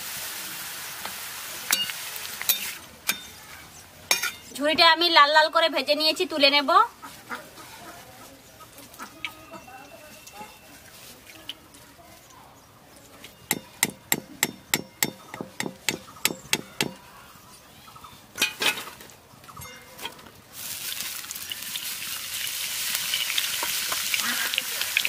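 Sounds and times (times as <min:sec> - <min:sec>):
hot oil sizzling: 0:00.0 - 0:03.5, 0:20.5 - 0:25.0
metal ladle clinking on wok: 0:04.1 - 0:04.5.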